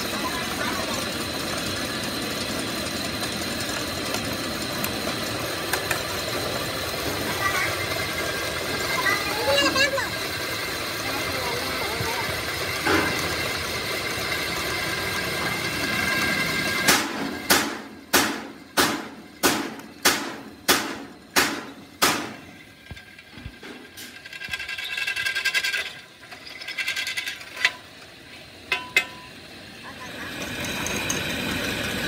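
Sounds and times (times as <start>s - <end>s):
machine running: 0.0s - 32.0s
metal-on-metal strikes ringing: 28.7s - 29.3s.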